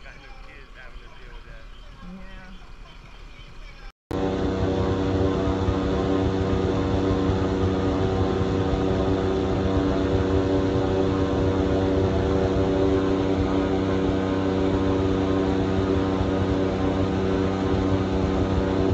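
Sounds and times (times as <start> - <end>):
airboat engine and propeller: 4.1 - 18.9.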